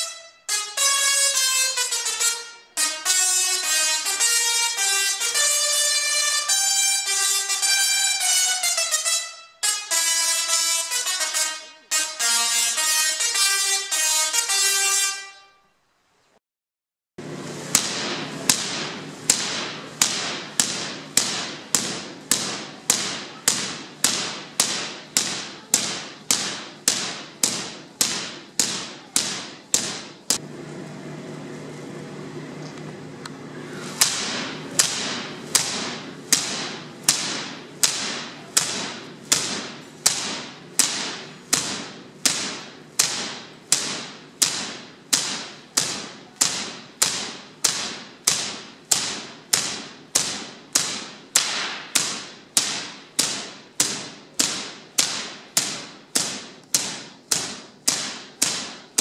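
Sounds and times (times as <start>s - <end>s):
high-voltage sparks cracking: 0.0s - 15.0s, 17.7s - 30.4s, 34.0s - 59.0s
low electrical hum: 17.2s - 59.0s.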